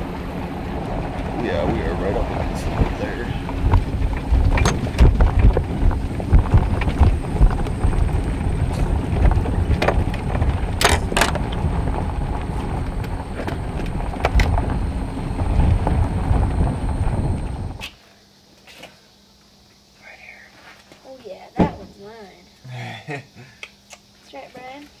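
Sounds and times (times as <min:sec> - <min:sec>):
trailer rumbling on gravel: 0:00.0 - 0:17.8
rattles and clacks: 0:00.9 - 0:14.8.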